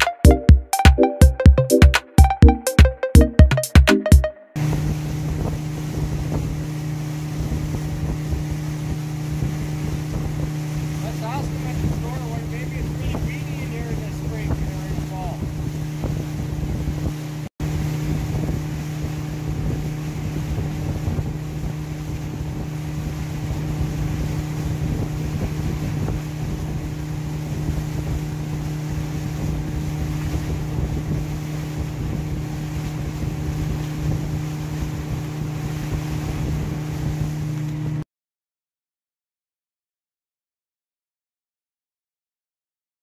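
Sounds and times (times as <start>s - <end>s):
outboard motor running: 4.6s - 38.0s.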